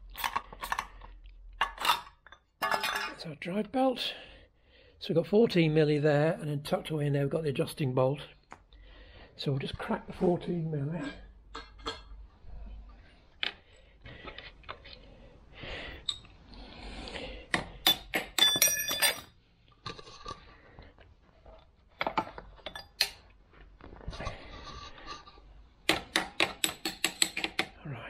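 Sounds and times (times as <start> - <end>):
spanner clicking and scraping on metal: 25.9 - 27.8.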